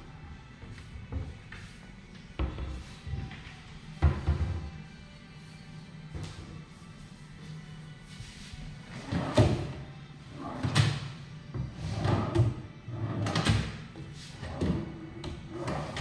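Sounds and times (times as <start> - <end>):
background music: 0.0 - 16.0
drawers sliding and knocking shut: 9.0 - 9.8.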